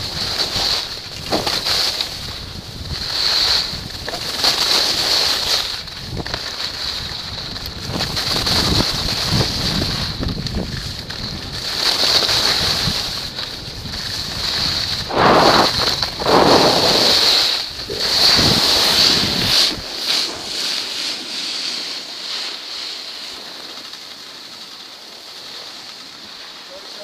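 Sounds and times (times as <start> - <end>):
skis scraping on snow: 0.0 - 27.0
wind rushing over microphone: 12.5 - 20.5.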